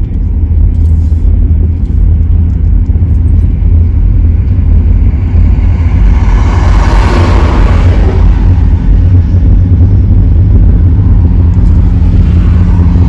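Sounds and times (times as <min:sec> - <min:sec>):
engine and road rumble: 0:00.0 - 0:13.0
rush of passing traffic: 0:00.0 - 0:13.0.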